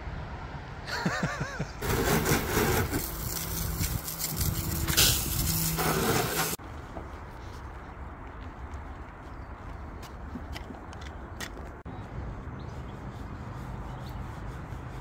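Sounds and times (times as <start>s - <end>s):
brush scrubbing wet paintwork: 1.8s - 6.6s, 12.7s - 15.0s
garden hose spraying water: 1.8s - 6.6s.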